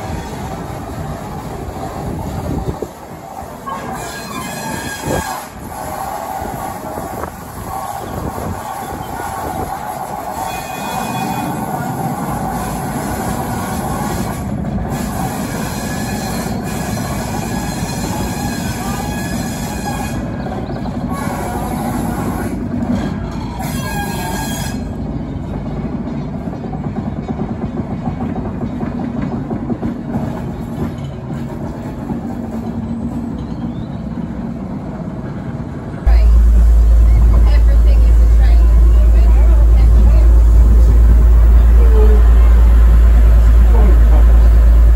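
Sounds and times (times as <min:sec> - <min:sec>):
diesel locomotive running: 0:00.0 - 0:44.9
wheel squeal on rails: 0:03.6 - 0:07.0, 0:07.6 - 0:25.1.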